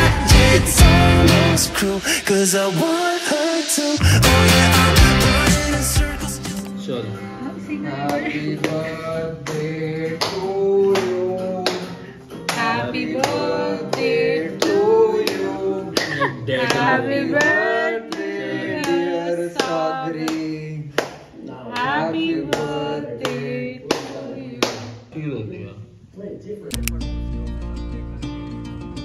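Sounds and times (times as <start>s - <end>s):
steady beat: 0.0s - 6.7s
person singing: 0.0s - 20.6s
sharp claps: 9.4s - 11.9s.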